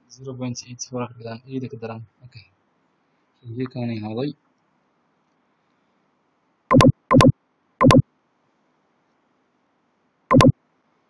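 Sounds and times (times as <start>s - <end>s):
short electronic tones: 6.7s - 8.0s, 10.3s - 10.5s.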